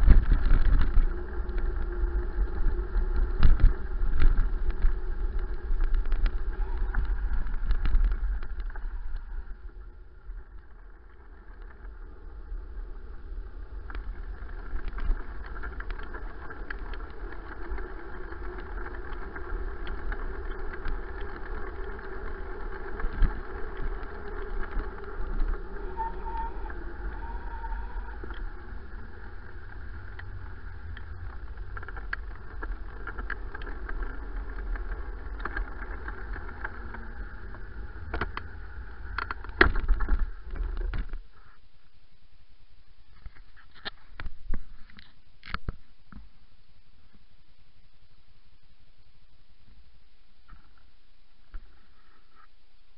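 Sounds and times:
bike rattling over bumps: 0:00.0 - 0:41.2
wind rumble: 0:00.0 - 0:41.5
bicycle tyre noise: 0:00.0 - 0:41.7.

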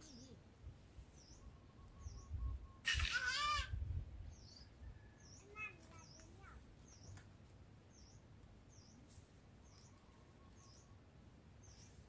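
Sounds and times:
small bird chirping: 0:01.1 - 0:03.1, 0:04.2 - 0:07.3, 0:07.9 - 0:11.0, 0:11.6 - 0:12.0.

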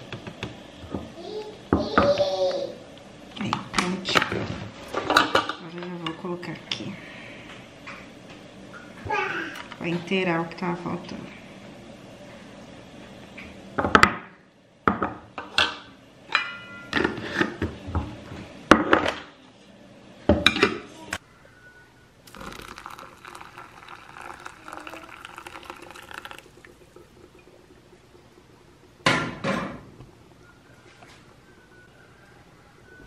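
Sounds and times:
water pouring onto coffee grounds: 0:22.3 - 0:28.6.

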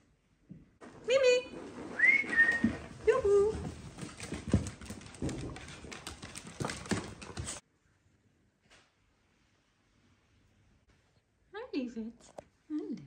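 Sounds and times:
paws clattering on wooden floor: 0:00.8 - 0:07.6.

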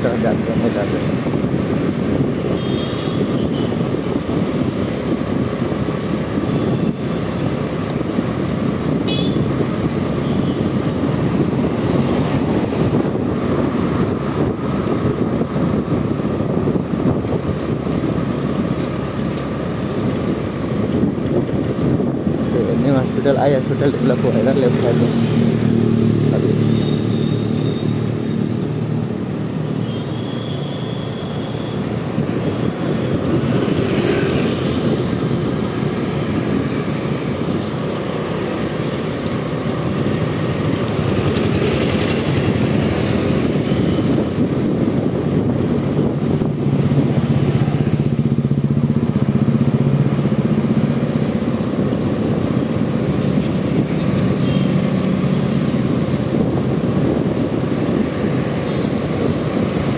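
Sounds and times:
road noise: 0:00.0 - 0:59.9.

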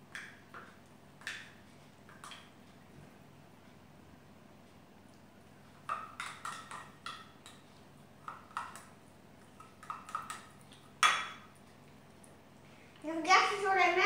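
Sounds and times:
plastic spoon clinking on dishes: 0:09.6 - 0:11.4.

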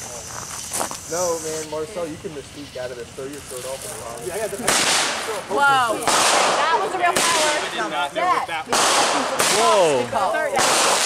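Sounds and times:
firework crackling bursts: 0:00.0 - 0:11.0.

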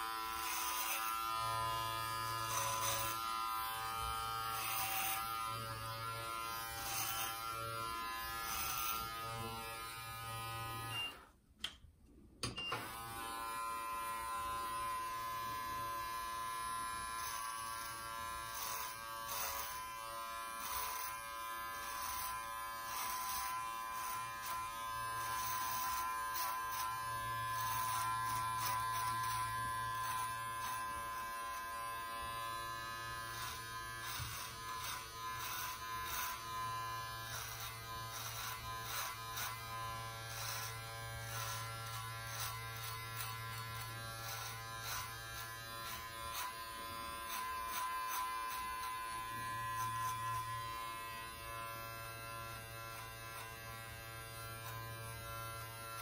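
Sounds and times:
trimmer blade crackling through hair: 0:00.0 - 0:10.0, 0:16.9 - 0:56.0
beard trimmer buzzing: 0:00.0 - 0:11.4, 0:12.4 - 0:56.0.

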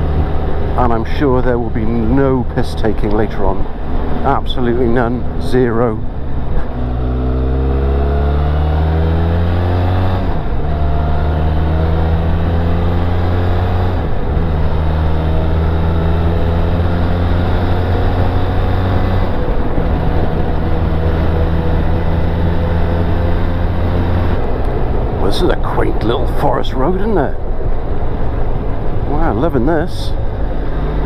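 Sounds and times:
motorcycle engine accelerating: 0:03.7 - 0:31.0.

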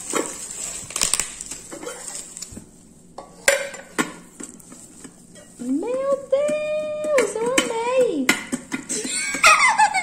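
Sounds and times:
plastic wrap rustling: 0:00.0 - 0:03.2.

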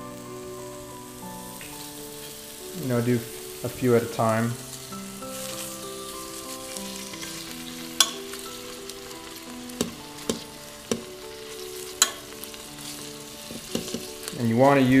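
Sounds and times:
meat sizzling in hot oil: 0:00.0 - 0:15.0
metal tongs clicking on pot: 0:08.0 - 0:08.4, 0:09.8 - 0:11.1, 0:11.8 - 0:12.6, 0:13.5 - 0:14.4.

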